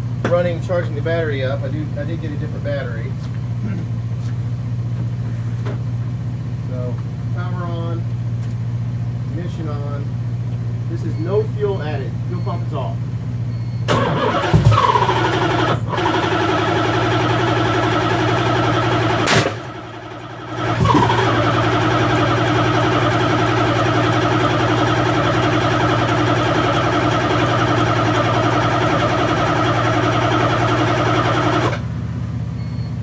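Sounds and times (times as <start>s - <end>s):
engine cranking on starter: 13.8s - 31.9s.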